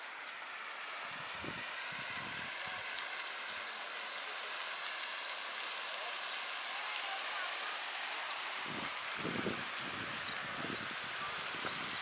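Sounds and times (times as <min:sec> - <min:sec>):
running water rushing: 0:00.0 - 0:12.0.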